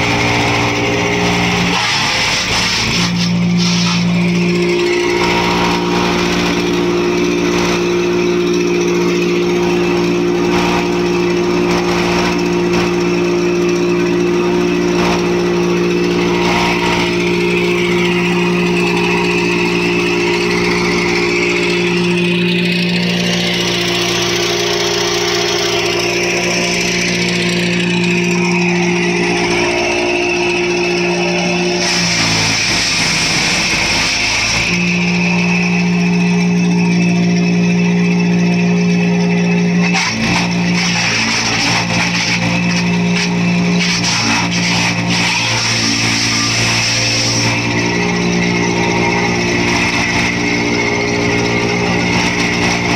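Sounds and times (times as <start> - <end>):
wood chipper engine running: 0.0 - 52.9
wood chips thrown out: 39.8 - 48.1.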